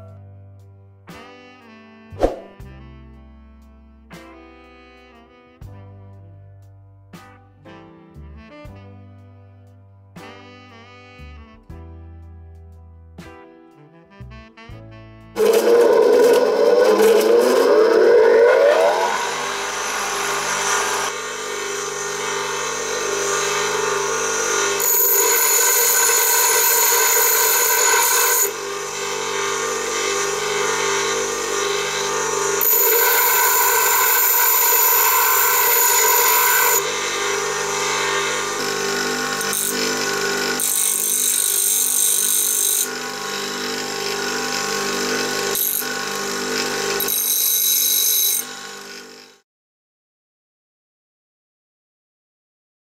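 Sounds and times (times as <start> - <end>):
bench grinder motor hum: 15.4 - 49.4.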